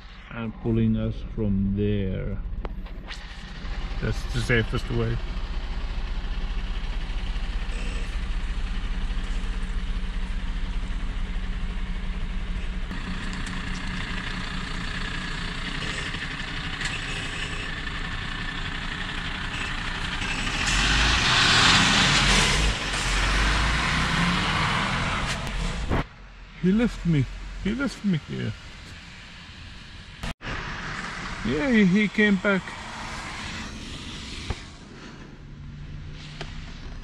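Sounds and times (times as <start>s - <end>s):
vehicle engine idling: 0.0s - 37.0s
rushing hiss: 30.5s - 35.3s.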